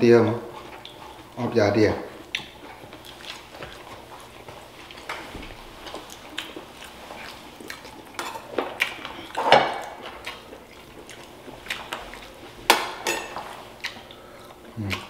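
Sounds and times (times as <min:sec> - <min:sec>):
spoons clinking against ceramic bowls: 0:13.0 - 0:13.5.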